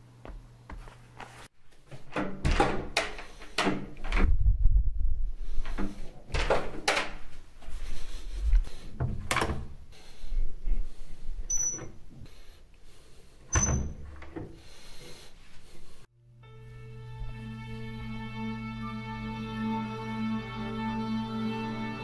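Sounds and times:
door and cabinet knocks and clunks: 0:02.0 - 0:04.3
short high squeaks: 0:11.5 - 0:12.0
music with held notes: 0:16.4 - 0:22.0.

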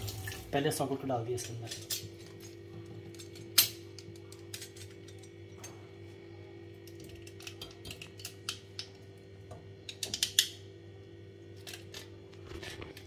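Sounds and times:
steady low hum: 0:00.0 - 0:13.0
clicks and rustles of wires: 0:11.6 - 0:13.0.

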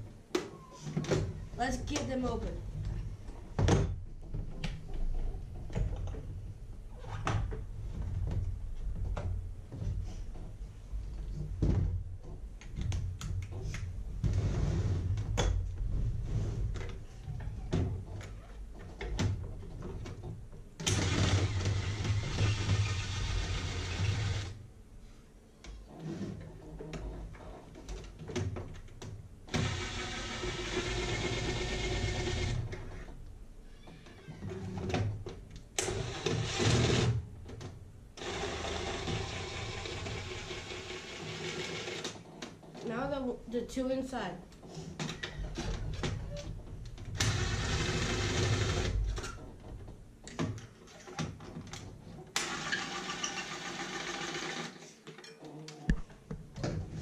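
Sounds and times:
cordless drill running: 0:21.0 - 0:24.6, 0:29.6 - 0:32.6, 0:38.2 - 0:42.0.

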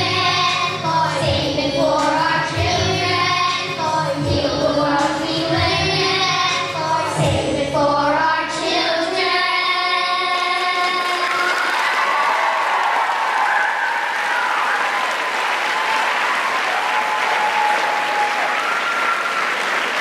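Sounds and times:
backing track with bass: 0:00.0 - 0:09.6
children's choir singing: 0:00.0 - 0:11.6.

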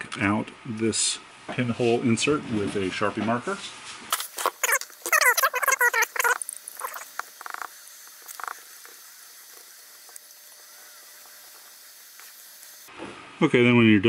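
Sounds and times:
marker squeaking on metal: 0:04.4 - 0:08.6.

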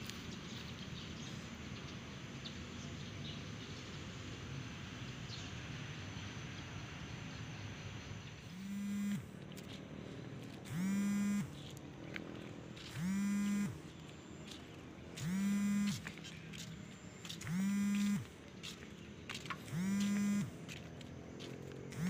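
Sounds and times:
electronic warning horn blasts: 0:08.5 - 0:09.4, 0:10.7 - 0:11.6, 0:12.9 - 0:13.8, 0:15.2 - 0:16.1, 0:17.4 - 0:18.3, 0:19.7 - 0:20.6.

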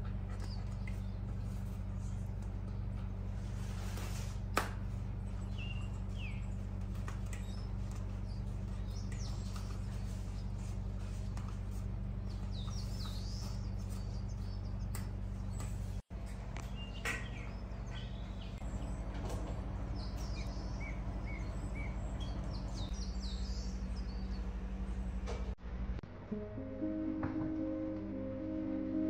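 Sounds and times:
steady low hum: 0:00.0 - 0:29.0
bird chirps: 0:05.2 - 0:11.2, 0:12.2 - 0:15.9, 0:16.6 - 0:25.1.

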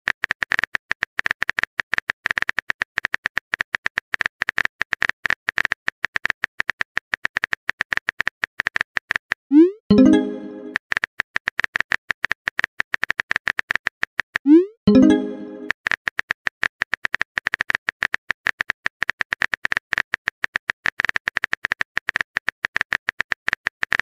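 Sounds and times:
keyboard typing clicks: 0:09.5 - 0:10.8, 0:13.0 - 0:15.8
chime-like alert sound: 0:09.9 - 0:10.8, 0:14.9 - 0:15.7.

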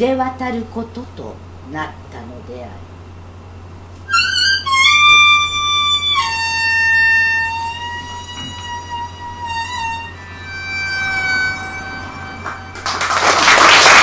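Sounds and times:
blues harmonica playing: 0:04.0 - 0:14.0.

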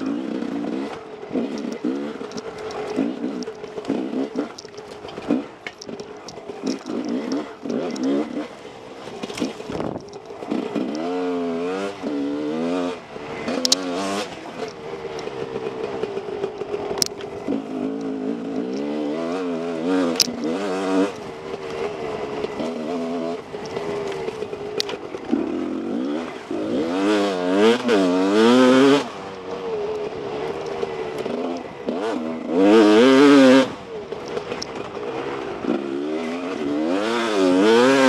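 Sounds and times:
dirt bike engine revving: 0:00.0 - 0:38.0
sharp clicks: 0:00.3 - 0:11.1, 0:13.5 - 0:26.5, 0:34.1 - 0:35.1.

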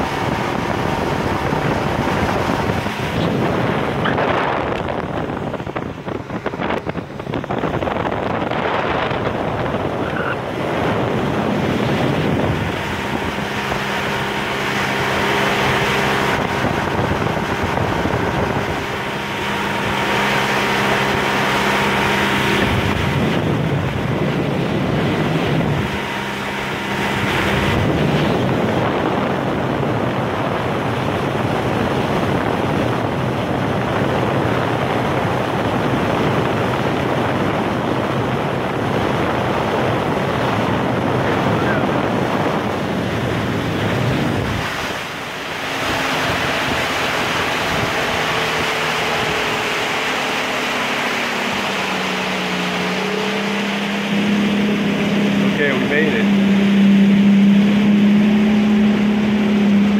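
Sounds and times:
boat engine humming: 0:00.0 - 0:59.9
water noise: 0:00.0 - 0:59.9
wind on microphone: 0:00.0 - 0:59.9.

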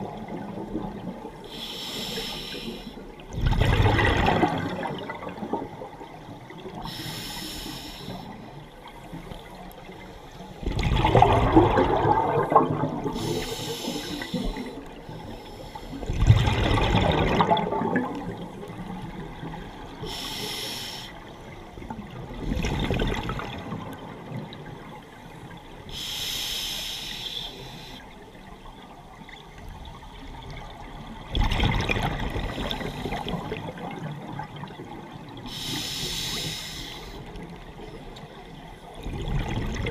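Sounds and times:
regulator inhalation hiss: 0:01.5 - 0:03.0, 0:06.9 - 0:08.4, 0:13.2 - 0:16.0, 0:20.0 - 0:21.2, 0:25.9 - 0:28.1, 0:35.5 - 0:37.3
exhaled bubbles gushing: 0:03.3 - 0:06.8, 0:10.6 - 0:15.1, 0:16.0 - 0:19.9, 0:21.9 - 0:25.0, 0:30.4 - 0:35.4, 0:39.0 - 0:39.9.

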